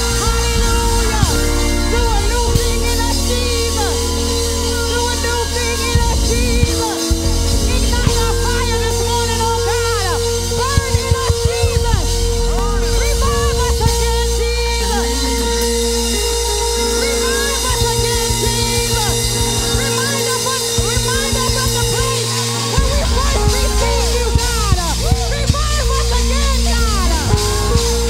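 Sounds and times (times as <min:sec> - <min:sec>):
worship band playing slow chords: 0:00.0 - 0:28.0
drum hits: 0:06.0 - 0:14.4, 0:17.6 - 0:28.0.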